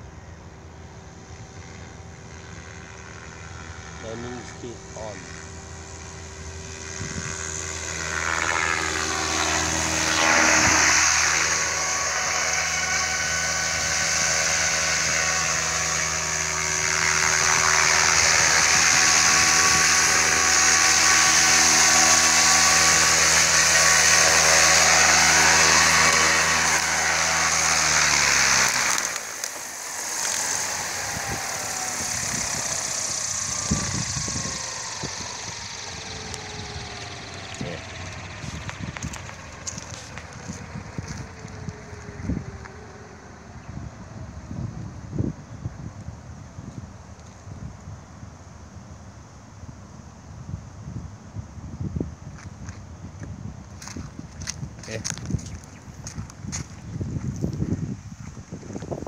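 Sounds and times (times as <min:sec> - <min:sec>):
model helicopter rotor whine: 0:00.0 - 0:59.0.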